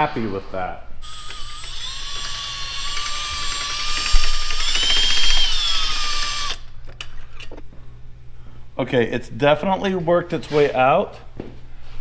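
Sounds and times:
cordless drill whine: 0:01.0 - 0:06.6.

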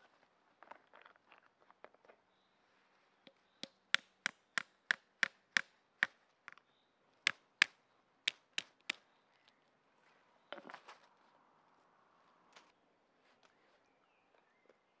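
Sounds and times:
hatchet knocking walnut on stone: 0:03.6 - 0:06.2, 0:07.3 - 0:09.0.

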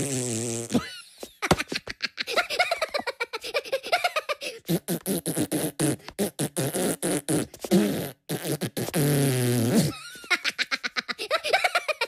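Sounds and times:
fart noise: 0:00.0 - 0:00.9, 0:04.6 - 0:10.0
cartoon voices giggling: 0:00.7 - 0:04.6, 0:09.8 - 0:12.0.

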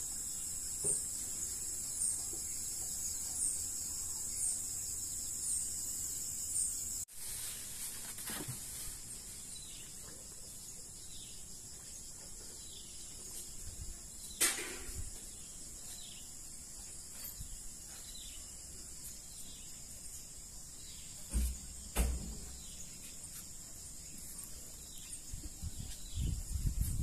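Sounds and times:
insects chorus: 0:00.0 - 0:27.0
handling rustle: 0:07.1 - 0:09.8.

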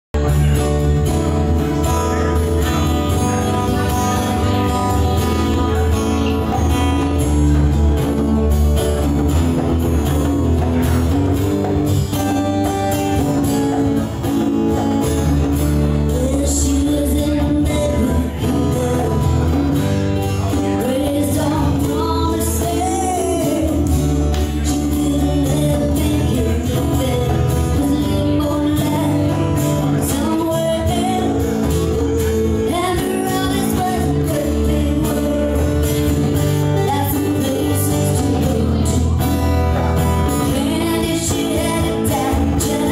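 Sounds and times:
electric bass: 0:00.1 - 0:42.9
acoustic guitars strummed: 0:00.2 - 0:42.9
person singing: 0:15.2 - 0:42.9.

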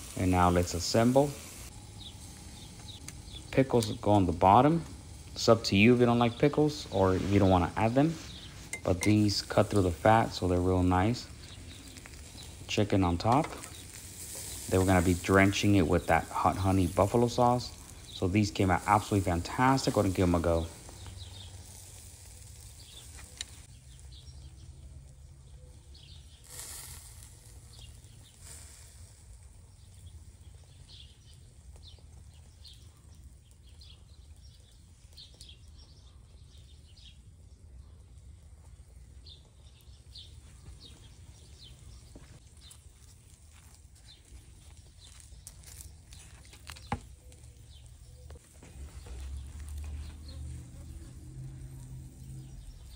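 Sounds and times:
faint bird chirps: 0:44.0 - 0:51.1.

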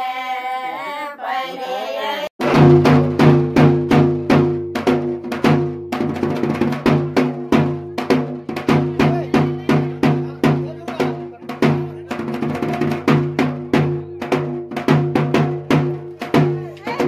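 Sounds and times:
women singing together: 0:00.0 - 0:02.4
deep drum strikes: 0:02.4 - 0:17.0.

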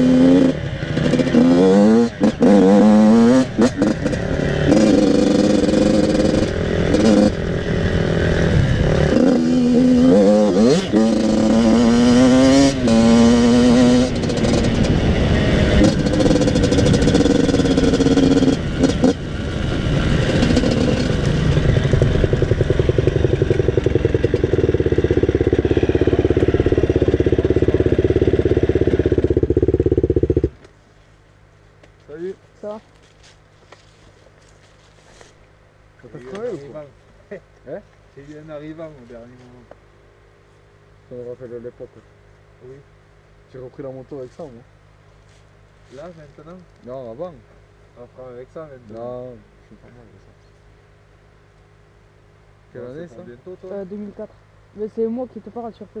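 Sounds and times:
dirt bike engine revving: 0:00.0 - 0:30.6.

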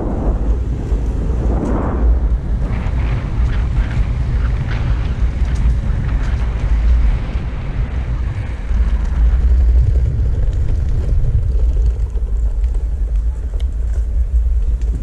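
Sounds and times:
wheels rolling over ground: 0:00.0 - 0:15.0
wind buffeting microphone: 0:00.0 - 0:15.0.

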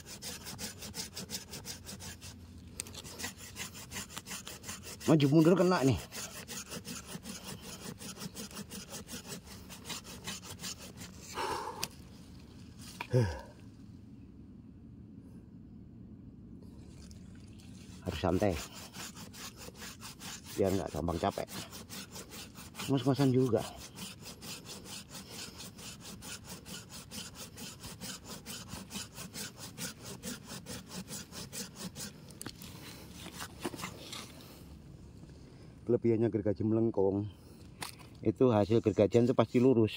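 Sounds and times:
hand saw cutting wood: 0:00.0 - 0:12.0, 0:17.8 - 0:34.6, 0:38.7 - 0:39.9.

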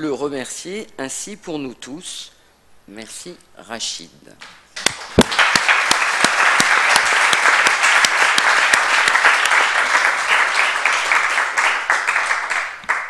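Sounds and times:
sharp individual claps: 0:04.4 - 0:13.0
audience applause: 0:04.9 - 0:13.0.

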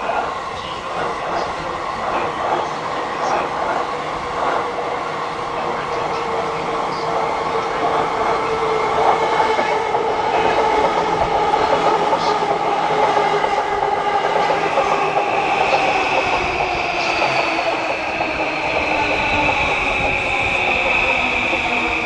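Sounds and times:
train wheels clattering on rails: 0:00.0 - 0:22.0.

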